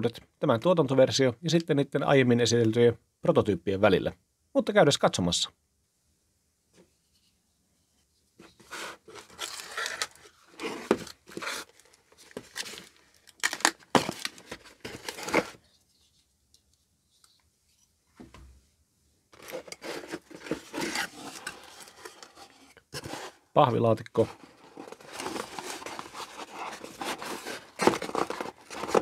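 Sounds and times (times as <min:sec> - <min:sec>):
cardboard rubbing and scraping: 0:08.4 - 0:12.8, 0:14.0 - 0:15.6, 0:19.4 - 0:23.5, 0:24.2 - 0:29.0.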